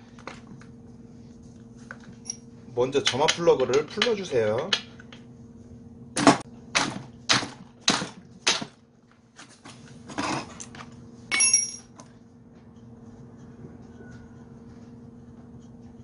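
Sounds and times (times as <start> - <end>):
metallic clink with ring: 11.3 - 11.9.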